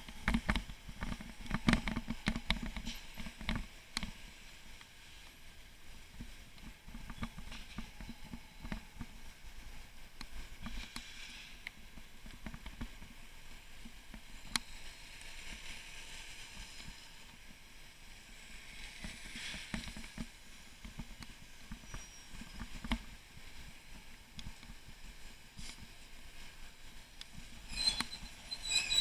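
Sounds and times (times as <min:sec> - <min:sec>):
bicycle rattling over cobblestones: 0:00.1 - 0:04.6.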